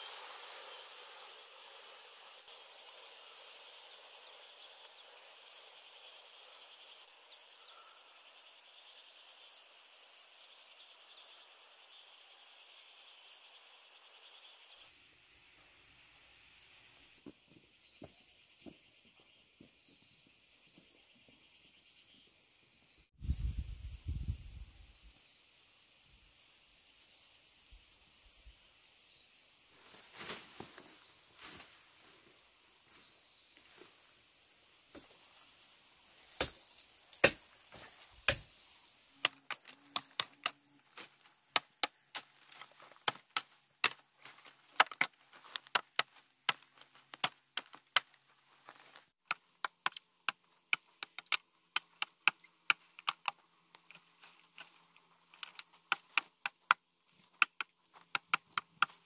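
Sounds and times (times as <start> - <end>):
insect buzz: 0.0 - 59.0
blade chopping bamboo: 36.4 - 38.6, 39.2 - 44.0, 44.7 - 48.2, 49.2 - 59.0.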